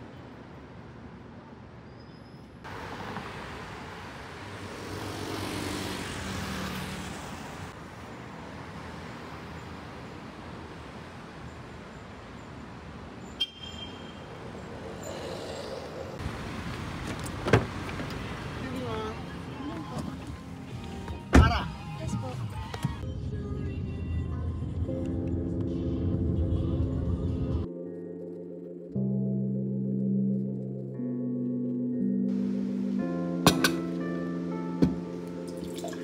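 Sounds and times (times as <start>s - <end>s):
cars passing: 2.5s - 23.0s.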